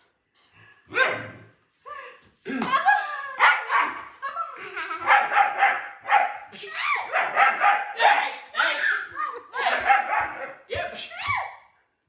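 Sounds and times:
puppy barking: 5.0s - 8.3s, 9.6s - 10.7s.

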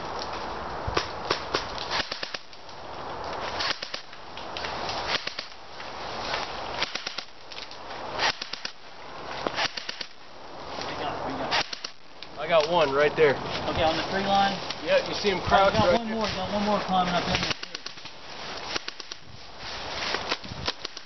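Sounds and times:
rustling: 0.0s - 21.0s
airsoft gun shots: 1.0s - 2.5s, 3.6s - 4.1s, 5.1s - 5.6s, 6.8s - 7.3s, 8.2s - 8.8s, 9.5s - 10.2s, 11.5s - 12.0s.

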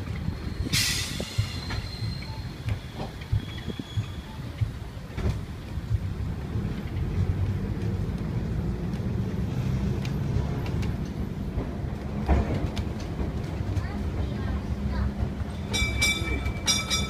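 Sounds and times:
streetcar wheels rumbling: 0.0s - 17.0s.

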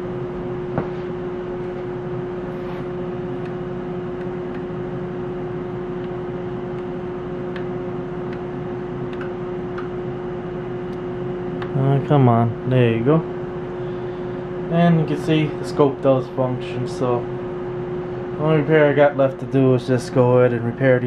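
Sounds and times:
cooling fans humming: 0.0s - 21.0s.

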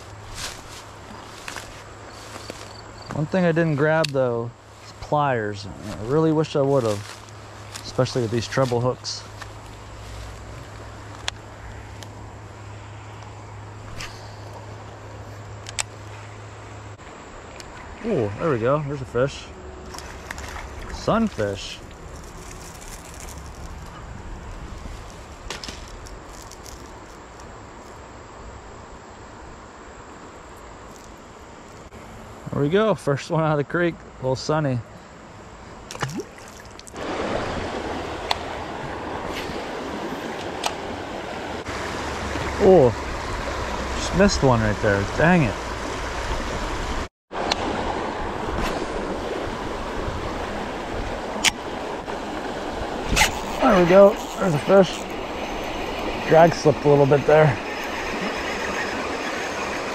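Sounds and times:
flowing creek water: 0.0s - 27.6s, 34.4s - 59.9s
high insect drone: 0.0s - 46.6s, 49.0s - 59.9s
creek water rushing over rocks: 35.9s - 59.9s.

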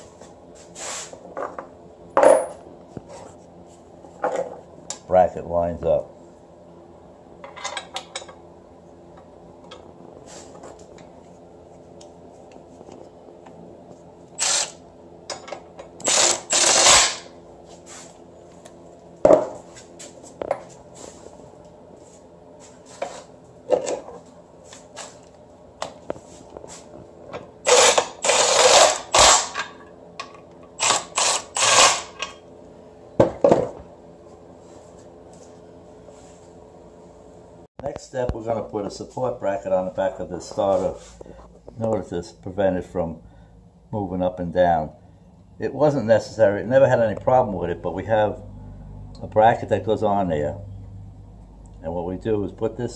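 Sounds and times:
cordless drill whirring: 14.4s - 14.8s, 16.0s - 17.3s, 27.7s - 29.5s, 30.8s - 32.1s.

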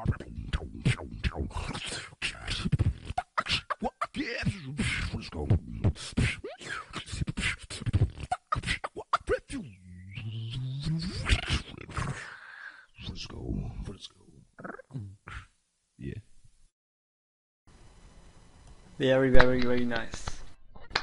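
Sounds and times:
held low vocal note: 0.0s - 1.8s, 9.5s - 12.1s
person beatboxing: 0.0s - 12.3s
vocal scratch imitations: 0.0s - 12.4s, 14.6s - 15.6s.

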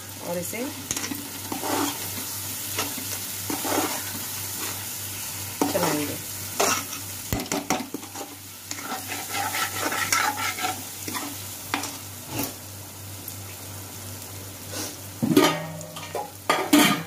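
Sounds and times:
masala sizzling: 0.0s - 17.0s
spatula scraping in a pan: 0.9s - 4.9s, 5.6s - 7.1s, 7.7s - 12.6s.

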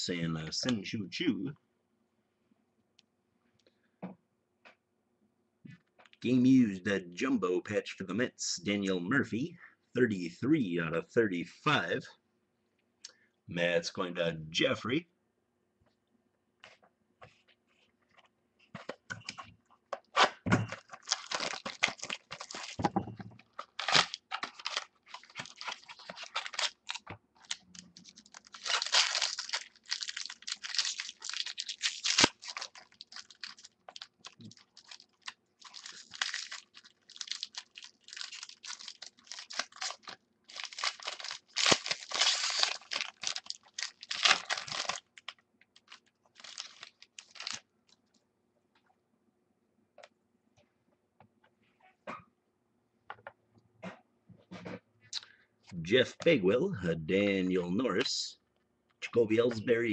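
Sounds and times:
rustling and crinkling of card packaging: 16.7s - 48.1s.

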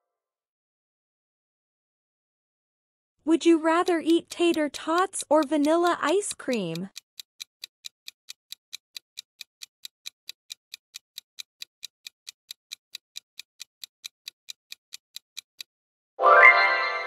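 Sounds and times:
fast clock ticking: 3.3s - 15.7s.

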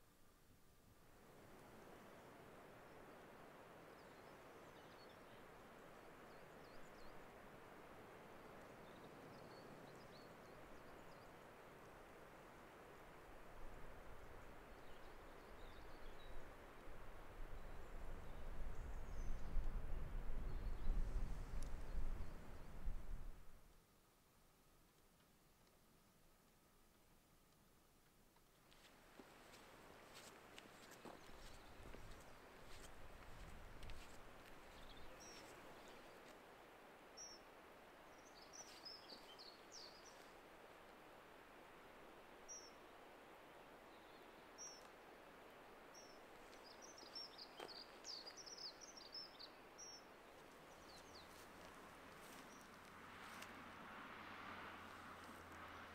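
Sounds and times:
soft steady hiss: 0.0s - 55.9s
wind gusts on microphone: 15.7s - 23.6s, 31.0s - 36.1s.

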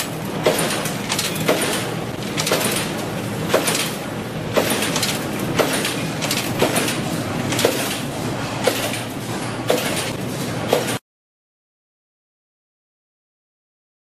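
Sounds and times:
wire cutting machine running: 0.0s - 11.0s
sharp cutting clack: 4.6s - 8.0s, 8.6s - 9.1s.

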